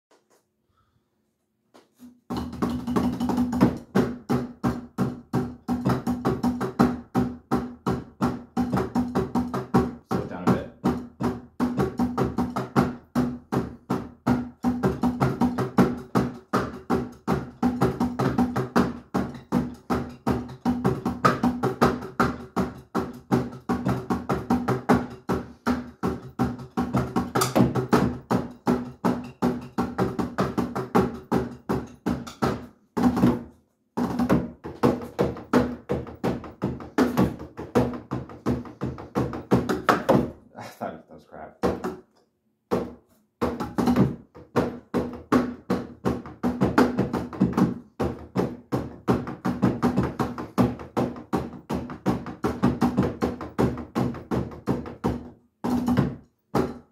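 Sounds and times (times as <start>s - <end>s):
drumsticks on electronic drum pads: 1.7s - 40.4s.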